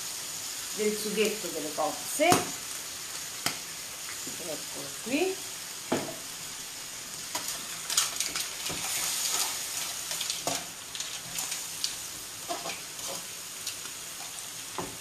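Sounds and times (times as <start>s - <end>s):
food sizzling in a frying pan: 0.0s - 15.0s.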